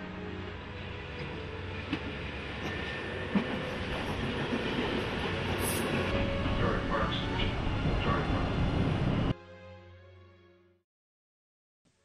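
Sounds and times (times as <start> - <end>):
subway train rumbling: 0.0 - 9.4.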